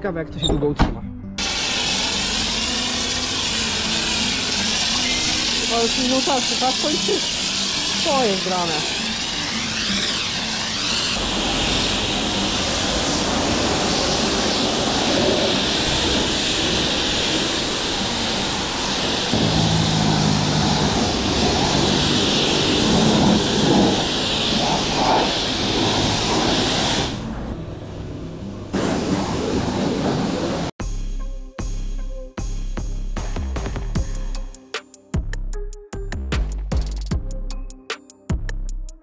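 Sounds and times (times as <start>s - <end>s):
pressure washer spraying car: 1.4s - 27.4s, 28.8s - 30.7s
low rumble: 19.4s - 26.5s.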